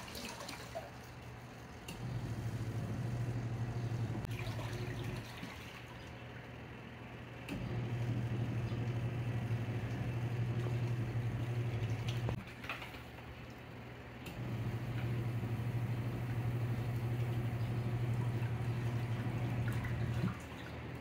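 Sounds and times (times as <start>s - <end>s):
water churning: 0.0s - 1.5s, 4.1s - 6.2s, 14.5s - 21.0s
washing machine motor humming: 0.0s - 13.2s, 13.8s - 21.0s.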